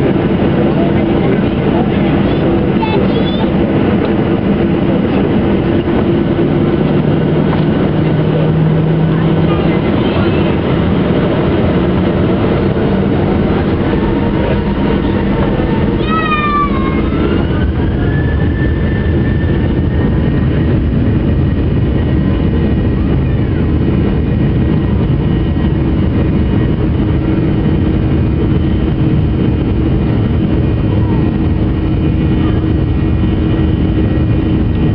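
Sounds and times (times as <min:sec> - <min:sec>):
jet engine and airflow rush: 0:00.0 - 0:34.9
jet engine whine: 0:00.0 - 0:34.9
child crying out: 0:16.0 - 0:17.6.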